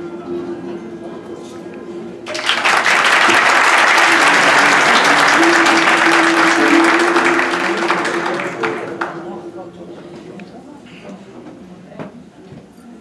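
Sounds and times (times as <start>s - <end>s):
audience applause: 2.3s - 9.6s.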